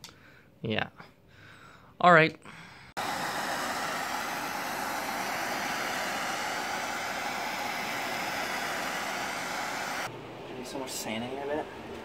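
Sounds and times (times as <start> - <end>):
gas torch hissing: 3.0 - 10.1.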